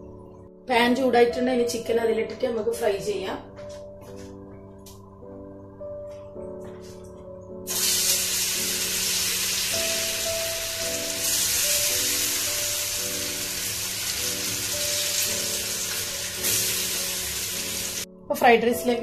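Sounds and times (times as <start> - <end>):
background music with held notes: 0.0 - 19.0
chicken sizzling in hot oil: 7.7 - 18.1.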